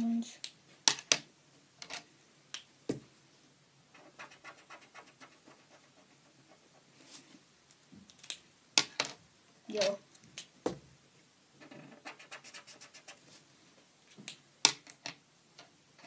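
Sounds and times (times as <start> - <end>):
felt-tip pen scratching paper: 4.0 - 6.9, 11.6 - 13.2.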